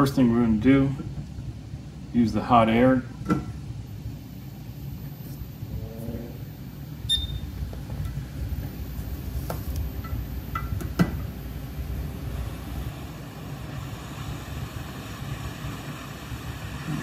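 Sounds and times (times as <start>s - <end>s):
short high beep: 7.1s - 7.4s
hot air blower rushing: 11.1s - 17.0s.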